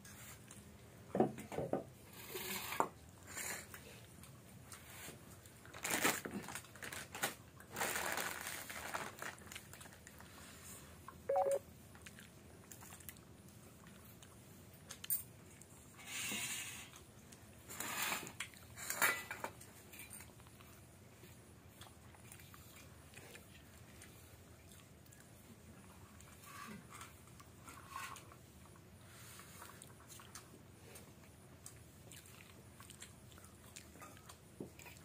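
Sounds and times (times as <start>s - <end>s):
short beep: 11.3s - 11.6s
chewing: 11.9s - 15.9s, 19.6s - 35.0s.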